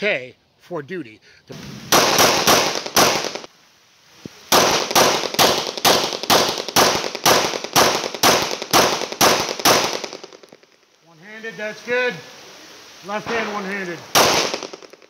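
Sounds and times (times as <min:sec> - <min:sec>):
pistol shots: 0:01.9 - 0:03.5, 0:04.5 - 0:10.6, 0:13.3 - 0:15.0.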